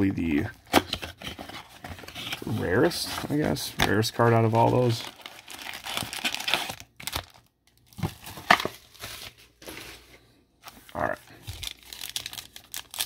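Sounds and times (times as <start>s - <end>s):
foil packs crinkling: 1.4s - 9.9s, 11.4s - 13.0s.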